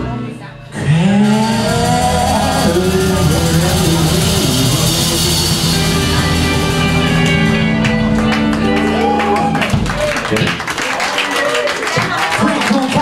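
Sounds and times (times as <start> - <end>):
electric guitars: 0.8 - 10.6
drum kit with cymbals: 1.2 - 10.2.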